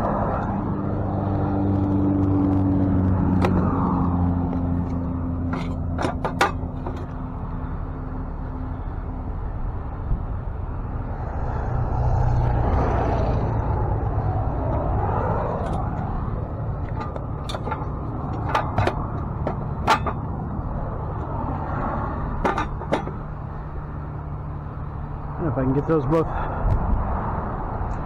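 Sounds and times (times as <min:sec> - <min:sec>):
truck engine running: 0:00.0 - 0:11.1, 0:13.3 - 0:28.0
metal clanks and clicks: 0:04.8 - 0:07.3, 0:16.8 - 0:20.4, 0:22.4 - 0:23.3.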